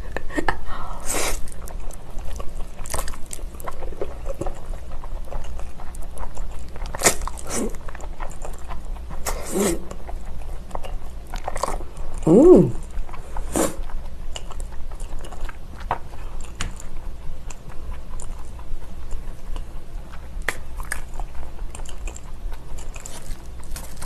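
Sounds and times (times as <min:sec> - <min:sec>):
closed-mouth hum: 0:00.0 - 0:24.0
person chewing: 0:01.1 - 0:24.0
person slurping noodles: 0:09.3 - 0:09.9, 0:12.2 - 0:12.8, 0:13.4 - 0:13.8.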